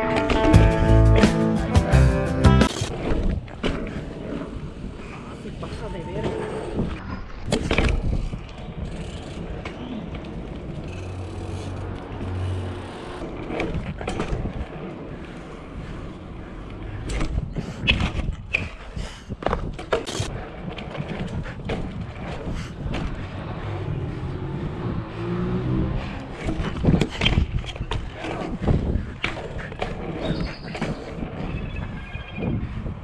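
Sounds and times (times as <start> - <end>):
bike tyre rumble on asphalt: 2.7 - 33.0
wind on microphone: 2.9 - 11.0, 13.3 - 33.0
bike knocks and rattles: 26.3 - 31.0.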